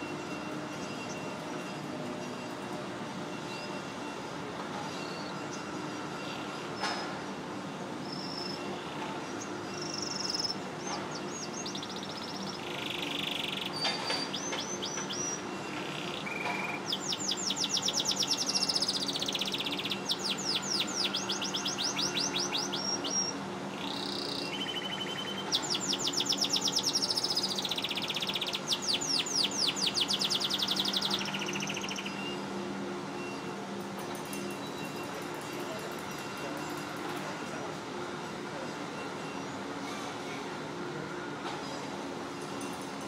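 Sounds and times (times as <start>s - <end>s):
canary singing trills: 8.1s - 32.4s.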